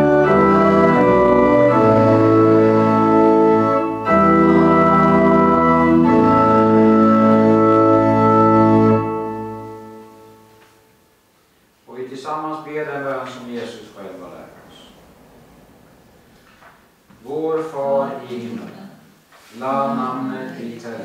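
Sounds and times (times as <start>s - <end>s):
church organ chords: 0.0s - 11.3s.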